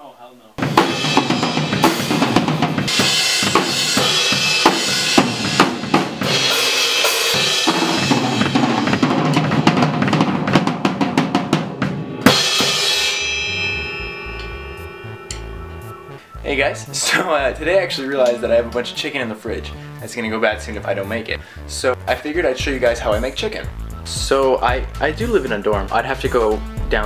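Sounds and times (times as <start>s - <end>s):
rock drum kit played fast: 0.6s - 15.8s, 22.4s - 27.0s
cymbal crash ringing: 0.6s - 16.5s.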